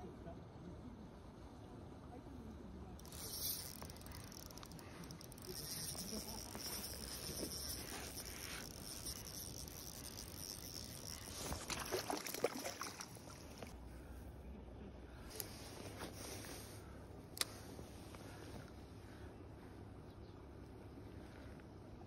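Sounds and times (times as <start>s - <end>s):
fishing reel cranking: 3.0s - 13.7s
fish splashing in water: 10.0s - 13.7s.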